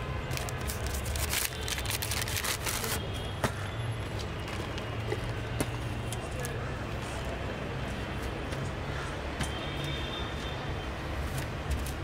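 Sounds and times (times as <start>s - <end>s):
low street rumble: 0.0s - 12.0s.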